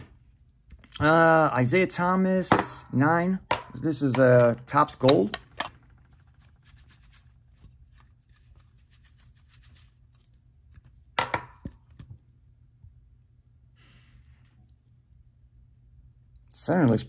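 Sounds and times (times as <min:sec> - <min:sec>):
soft rustle: 0:05.8 - 0:11.0.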